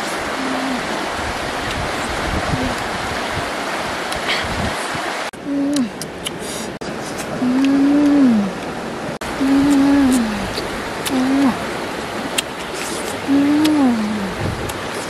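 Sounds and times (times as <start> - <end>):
river water rushing: 0.0 - 15.0
woman humming while eating: 5.4 - 6.0, 7.2 - 8.6, 9.4 - 11.6, 13.2 - 14.4.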